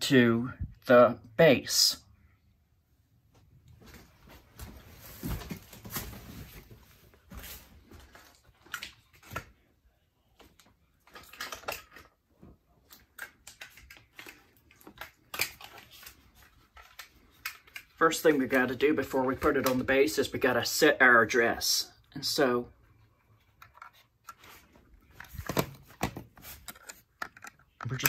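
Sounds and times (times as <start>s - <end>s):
rustling of handled things: 3.2s - 20.3s, 22.7s - 28.0s.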